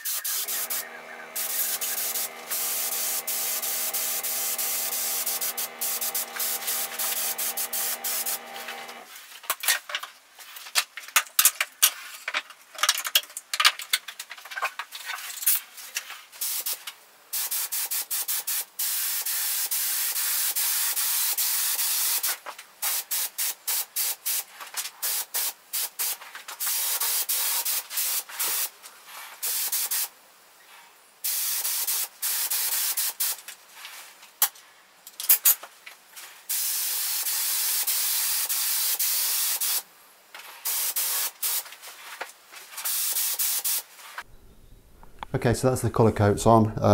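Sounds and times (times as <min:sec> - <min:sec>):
spray gun hissing: 0:00.0 - 0:09.1, 0:31.2 - 0:33.4, 0:36.5 - 0:39.8, 0:40.6 - 0:41.7, 0:42.8 - 0:43.9
spray gun trigger clicks: 0:00.1 - 0:09.1
steady low hum: 0:00.3 - 0:09.1.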